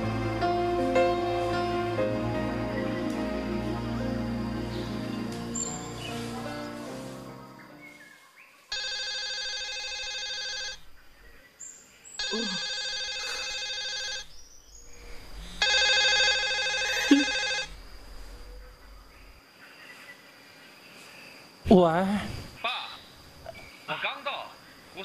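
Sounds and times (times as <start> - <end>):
electronic phone ringtone: 8.7 - 10.8, 12.2 - 14.3, 15.6 - 17.7.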